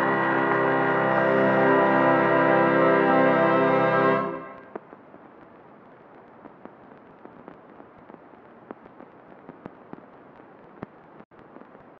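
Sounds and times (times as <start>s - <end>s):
faint steady hiss: 0.0s - 11.9s
crackling clicks: 4.6s - 11.9s.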